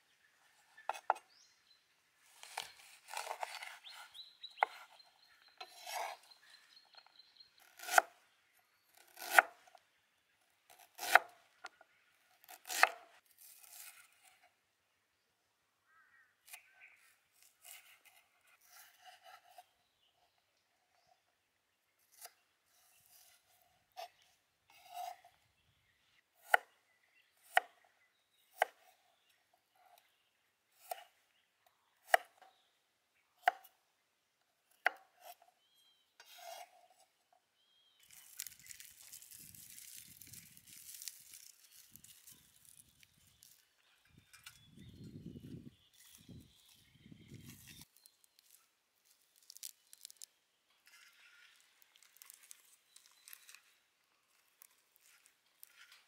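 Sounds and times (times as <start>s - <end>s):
knife scraping: 2.4s - 4.8s, 5.6s - 6.4s, 36.2s - 37.0s, 55.0s - 56.0s.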